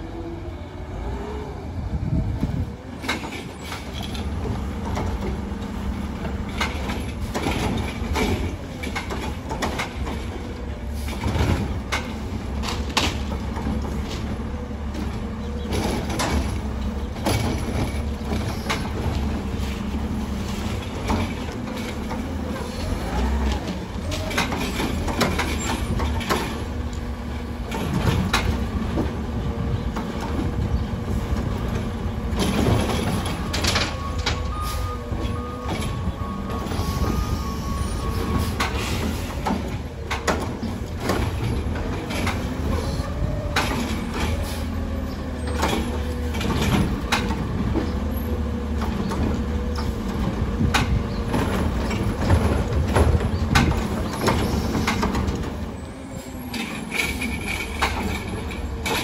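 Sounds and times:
garbage truck engine rumble: 0.0s - 59.0s
clanks of arm and cart: 6.2s - 19.9s, 20.6s - 22.4s, 23.5s - 29.2s, 29.8s - 36.1s, 38.6s - 55.6s, 56.5s - 59.0s.

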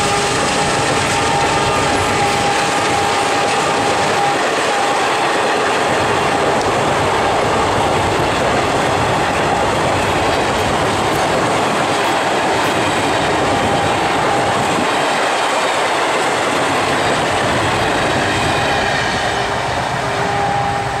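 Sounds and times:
train wheels clattering over rail joints: 0.0s - 20.0s.

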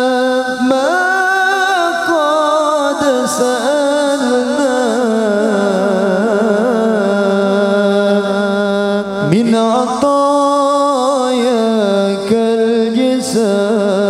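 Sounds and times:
man singing: 0.0s - 14.0s.

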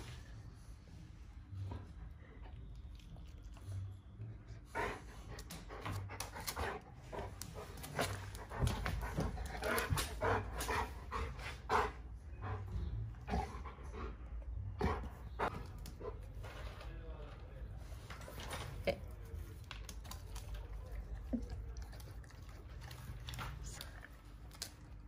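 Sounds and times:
dog panting: 4.5s - 16.4s.

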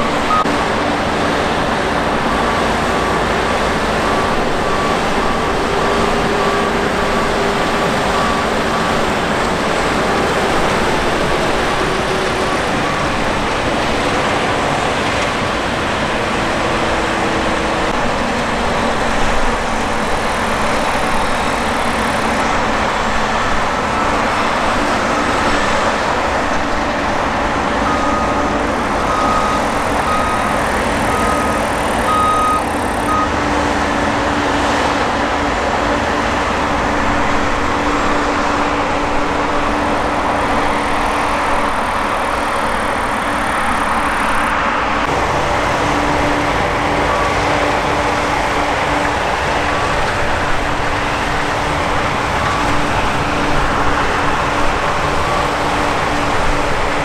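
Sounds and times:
short beeps: 0.0s - 0.6s, 27.8s - 33.4s
combine harvester drone: 0.0s - 57.0s.

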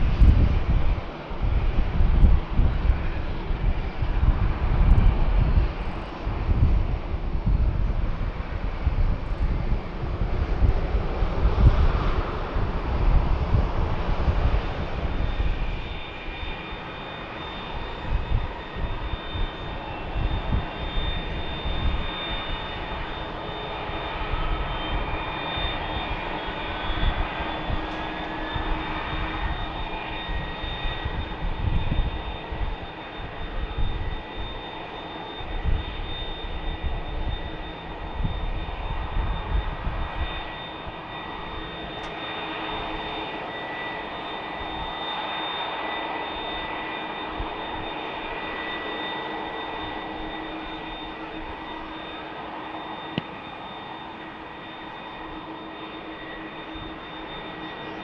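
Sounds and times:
uneven low rumble: 0.0s - 15.6s
jet engine whine: 0.0s - 58.0s.

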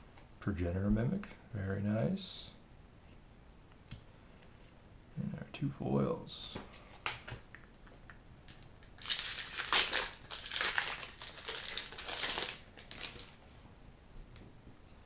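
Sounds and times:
foil wrapper crinkling: 8.5s - 13.4s.

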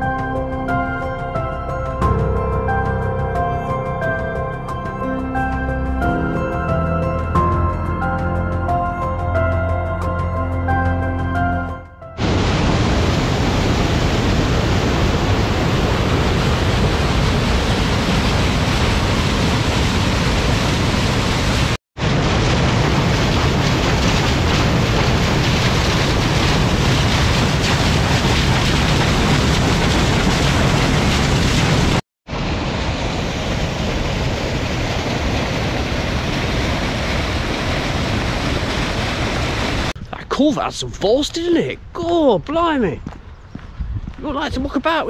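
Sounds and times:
water rushing down stone channel: 12.3s - 32.0s, 33.1s - 40.0s.

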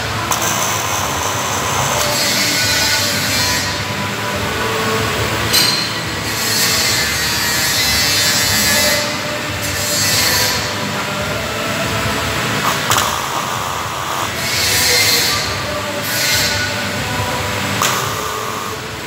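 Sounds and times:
metalworking equipment noise: 0.0s - 19.0s.

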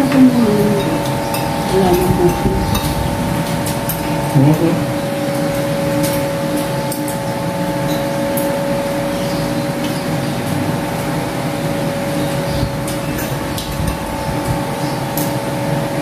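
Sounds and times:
steady machine hum: 0.0s - 16.0s.

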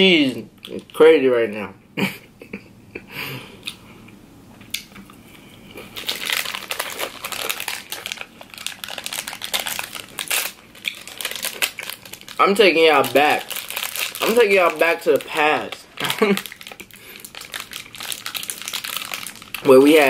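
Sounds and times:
plastic wrapper crinkling: 5.7s - 20.0s.

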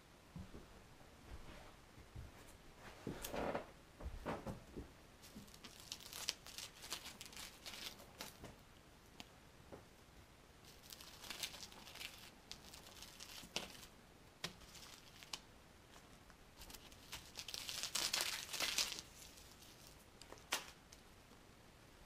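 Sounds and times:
wood shavings rustling: 5.2s - 8.5s, 10.6s - 20.8s.

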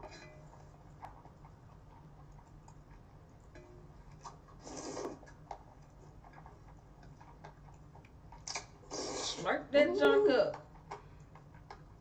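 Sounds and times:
low steady hum: 0.0s - 12.0s
noodles being slurped: 4.2s - 5.4s, 8.4s - 9.5s.

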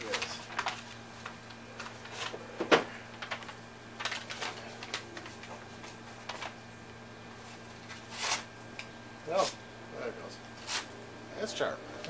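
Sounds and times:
paper crinkling and crackling: 0.0s - 8.6s
knife cutting paper: 8.0s - 8.5s, 10.6s - 10.9s.

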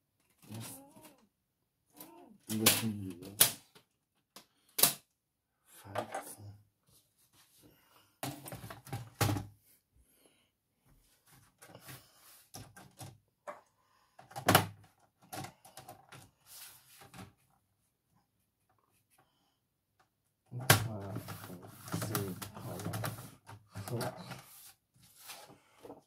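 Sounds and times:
plastic clacks and knocks: 8.2s - 9.5s, 12.5s - 16.3s, 20.6s - 24.4s
paper sliding and scraping: 16.4s - 17.0s, 24.2s - 25.9s.

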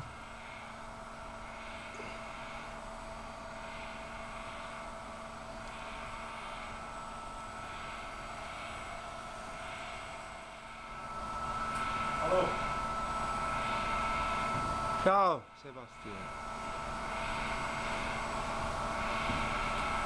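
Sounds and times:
machinery hum: 0.0s - 20.0s
soft pulsing hiss: 0.0s - 20.0s.

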